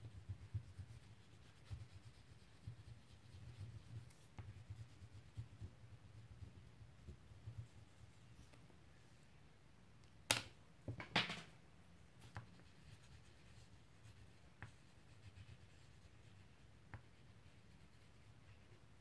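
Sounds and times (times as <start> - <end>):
crayon scratching on paper: 0.0 - 8.3, 12.3 - 18.8.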